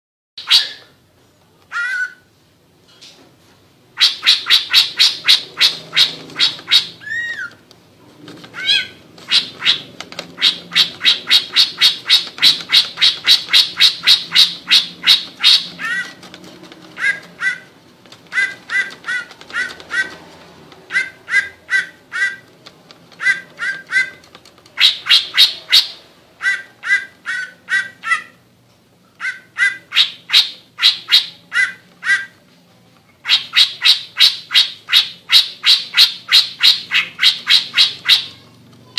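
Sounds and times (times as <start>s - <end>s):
bird singing harsh repeated notes: 0.4s - 0.9s, 4.0s - 7.6s, 8.6s - 16.2s, 20.9s - 22.5s, 24.8s - 28.4s, 29.2s - 32.3s, 33.2s - 38.4s.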